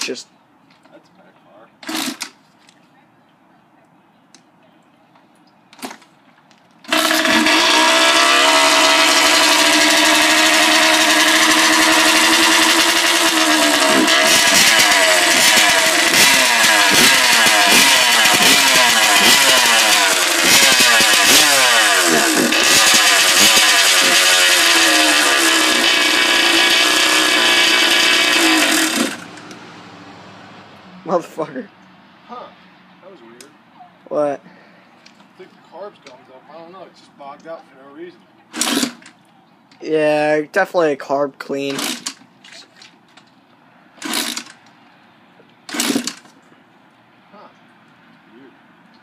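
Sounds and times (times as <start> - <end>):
dirt bike engine revving: 6.9 - 31.6, 38.5 - 39.1, 41.5 - 42.2, 44.0 - 44.6, 45.7 - 46.3.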